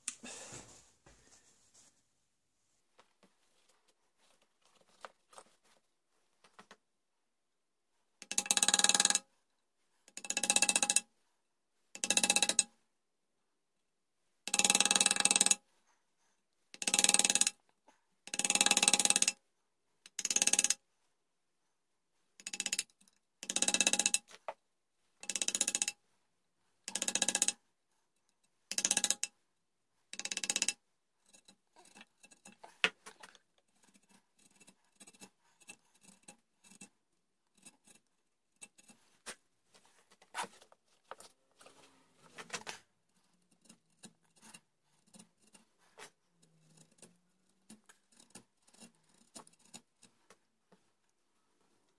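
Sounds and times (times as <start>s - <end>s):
chisel scraping wood: 30.2s - 50.3s.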